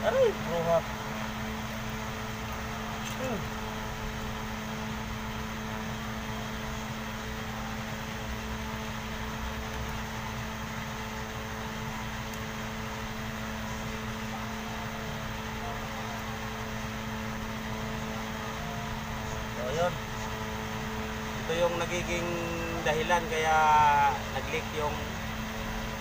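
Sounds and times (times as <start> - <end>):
machine hum: 0.0 - 26.0.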